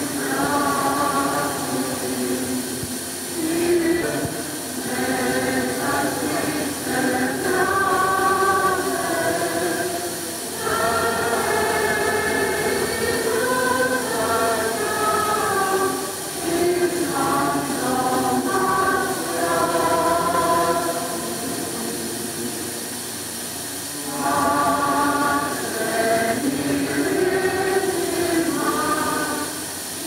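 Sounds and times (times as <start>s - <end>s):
choir singing a slow hymn: 0.0s - 30.0s
old film hiss: 0.0s - 30.0s.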